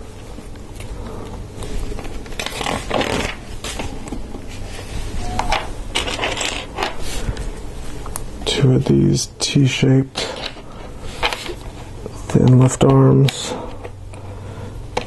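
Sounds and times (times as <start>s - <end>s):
plastic parts scraping rattles: 5.5s - 7.0s.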